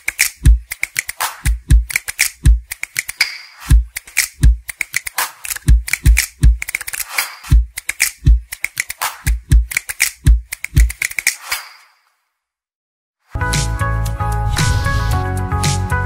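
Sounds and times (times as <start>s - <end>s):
drum machine beat: 0.0s - 11.4s.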